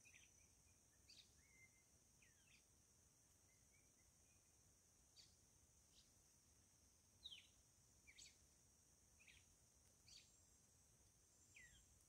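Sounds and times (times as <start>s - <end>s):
faint bird chirps: 0.0s - 2.7s, 7.2s - 8.4s, 9.2s - 10.6s, 11.3s - 12.0s.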